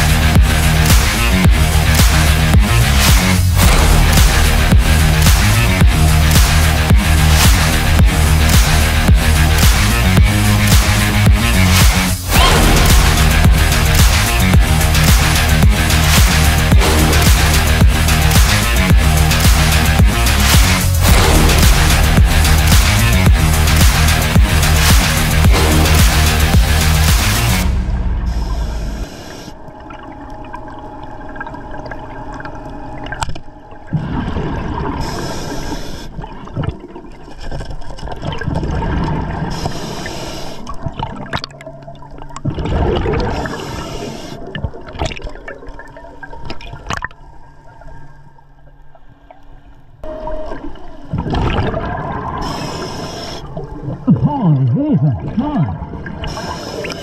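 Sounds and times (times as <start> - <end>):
low underwater rumble: 3.3 - 8.4, 11.3 - 24.9, 27.5 - 35.1
exhaled bubbles hissing: 28.2 - 54.4, 55.2 - 57.0.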